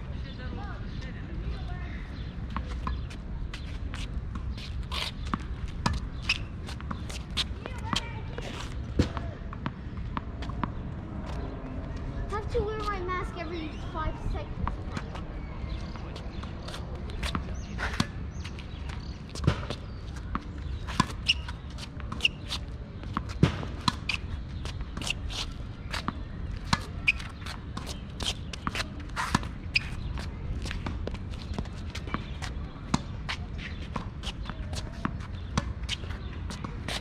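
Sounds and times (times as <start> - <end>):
ball bouncing on asphalt: 5.2 - 11.4, 14.6 - 37.0.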